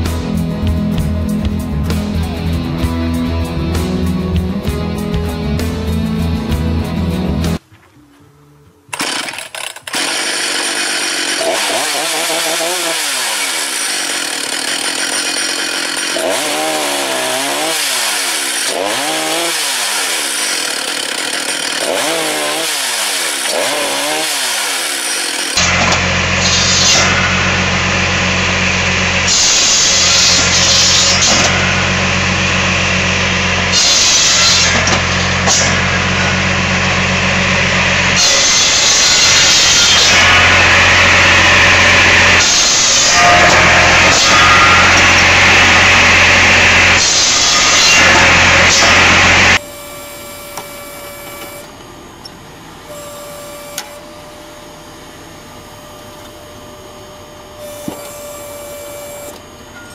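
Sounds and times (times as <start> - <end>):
steady engine drone: 0.0 - 7.6, 21.8 - 59.9
chainsaw cutting through logs: 8.9 - 51.8, 52.9 - 54.1, 57.6 - 59.4.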